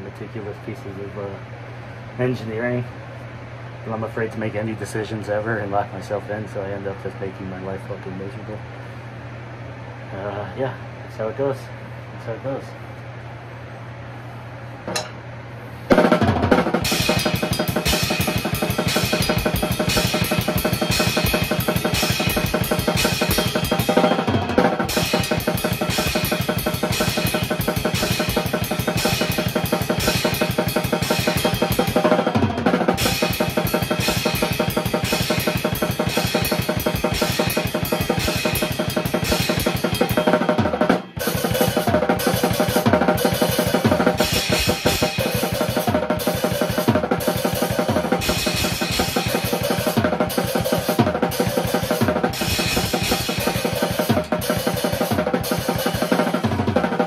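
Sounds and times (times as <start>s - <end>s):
drum kit played fast: 15.9s - 57.0s.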